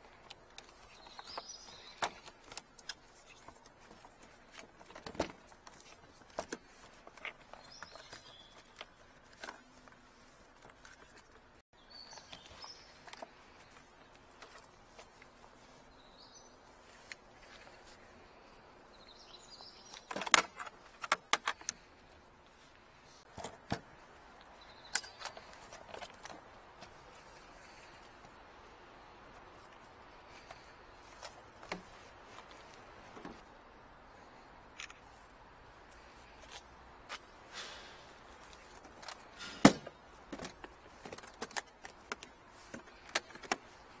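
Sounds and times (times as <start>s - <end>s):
tools and cable clacking on case: 0.0s - 11.5s, 19.9s - 21.9s, 23.3s - 23.9s, 24.9s - 27.0s, 37.6s - 44.0s.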